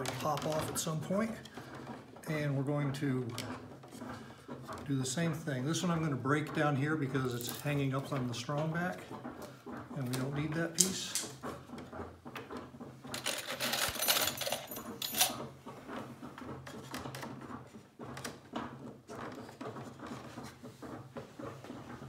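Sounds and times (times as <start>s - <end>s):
wood scraping and rubbing: 0.0s - 22.0s.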